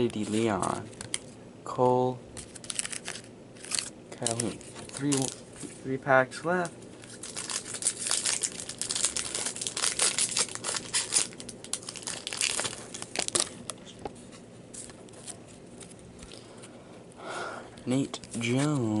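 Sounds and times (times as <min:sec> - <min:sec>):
wrapper crinkling and tearing: 0:02.4 - 0:05.4, 0:07.0 - 0:13.9.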